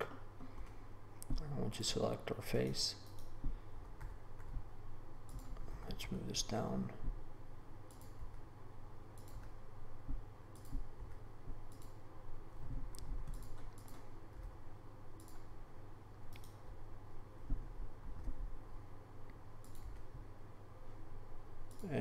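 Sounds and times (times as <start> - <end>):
low steady hum: 0.0 - 22.0
keyboard and mouse clicks: 3.0 - 5.7, 7.9 - 8.4, 9.1 - 12.0, 12.6 - 15.5, 16.3 - 16.7, 19.3 - 20.2, 21.6 - 22.0.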